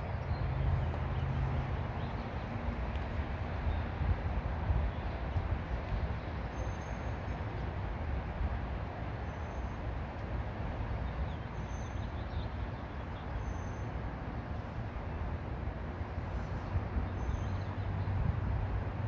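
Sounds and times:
wind buffeting microphone: 0:17.9 - 0:19.0.

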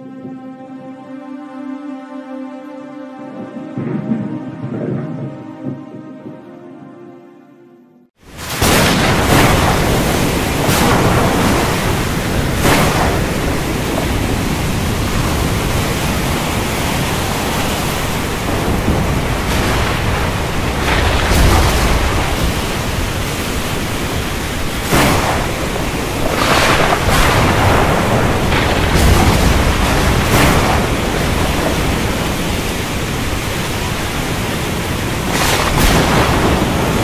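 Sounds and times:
rushing wind: 0:03.2 - 0:06.6, 0:08.2 - 0:37.0
deep rumble: 0:03.3 - 0:06.5.

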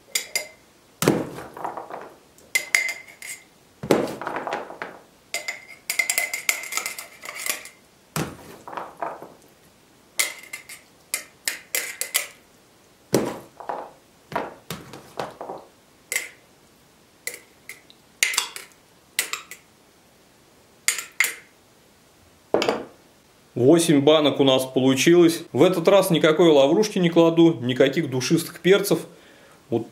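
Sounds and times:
metal spoon scraping glass jars: 0:00.0 - 0:00.6, 0:02.5 - 0:03.5, 0:05.4 - 0:07.8, 0:10.2 - 0:12.4, 0:17.3 - 0:19.6.

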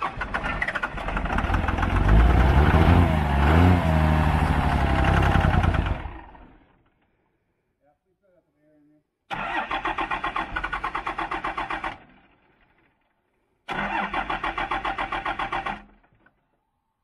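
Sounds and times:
diesel engine cranking: 0:00.0 - 0:06.8, 0:09.3 - 0:12.9, 0:13.7 - 0:16.4.

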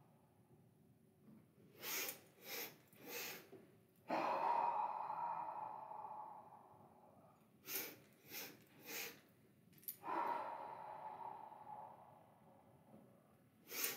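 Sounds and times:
woman breathy exhale: 0:01.8 - 0:03.5, 0:04.1 - 0:09.2, 0:09.9 - 0:12.7, 0:13.7 - 0:13.9
woman sniffing inhales: 0:01.8 - 0:03.5, 0:07.6 - 0:09.2, 0:13.6 - 0:13.9.

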